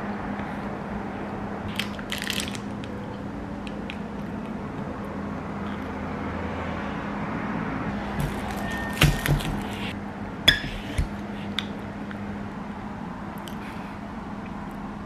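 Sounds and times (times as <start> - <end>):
plastic wrapper crinkling: 1.7 - 2.9.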